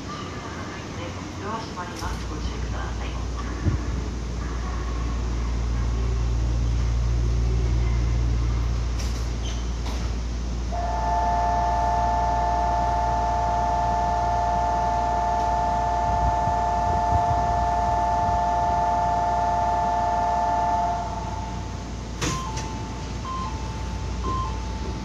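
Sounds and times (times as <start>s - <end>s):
electric train humming: 0.0s - 25.0s
short beeps at two pitches: 10.8s - 21.6s
two-note departure bell: 10.8s - 25.0s.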